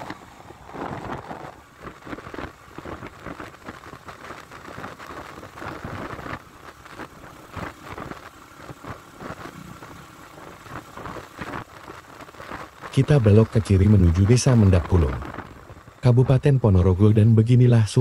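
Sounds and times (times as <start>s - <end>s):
wind buffeting microphone: 0.0s - 16.3s
motorcycle engine running: 5.6s - 11.8s.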